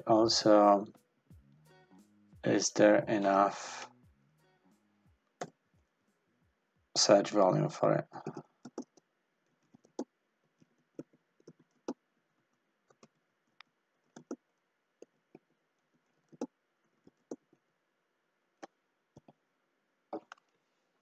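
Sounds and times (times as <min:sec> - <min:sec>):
computer keyboard typing: 0:08.2 - 0:09.0, 0:10.9 - 0:12.0, 0:14.1 - 0:14.4, 0:16.0 - 0:17.5.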